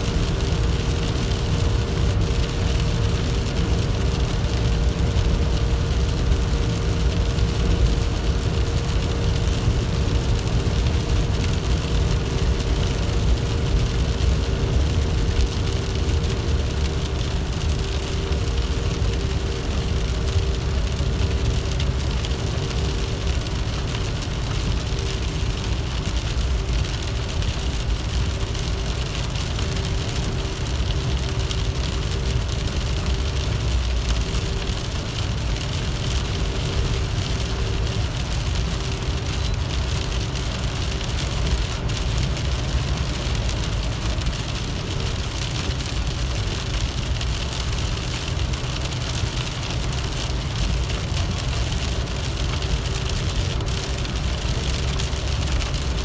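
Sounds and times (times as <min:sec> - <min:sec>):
car cabin road rumble: 0:00.0 - 0:56.0
rain hitting windscreen: 0:00.0 - 0:56.0
tyres hissing on wet road: 0:00.0 - 0:56.0.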